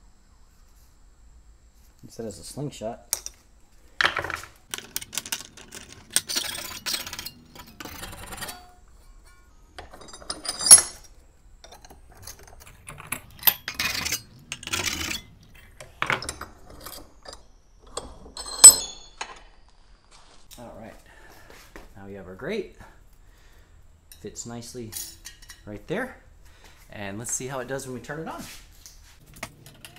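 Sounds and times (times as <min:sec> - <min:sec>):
metal clinking and scraping: 0:04.0 - 0:19.6, 0:24.1 - 0:25.8, 0:29.2 - 0:29.9
sharp ringing metal clink: 0:18.5 - 0:19.2.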